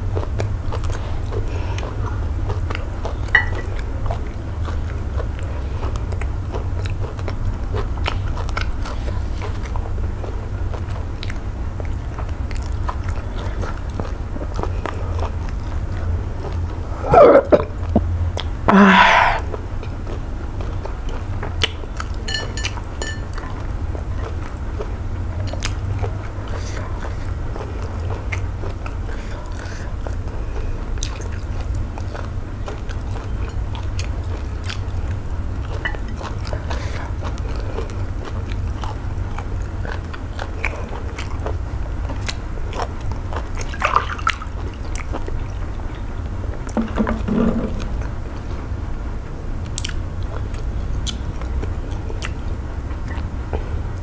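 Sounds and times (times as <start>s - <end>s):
chewing and wet mouth clicks: 0.0s - 16.8s, 17.4s - 48.6s, 49.6s - 54.0s
steady low hum: 0.0s - 54.0s
low throaty sound: 16.9s - 19.7s, 46.2s - 49.4s.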